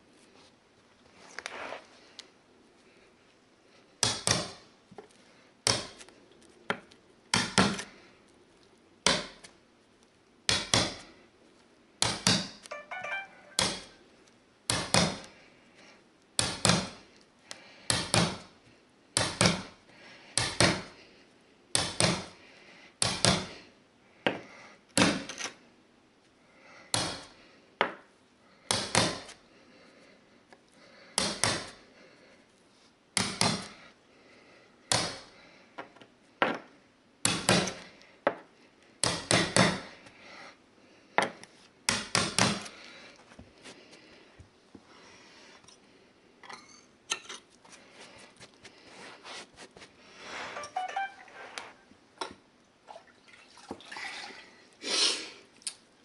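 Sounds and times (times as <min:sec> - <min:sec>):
hammer striking steel tool: 0:12.7 - 0:14.0.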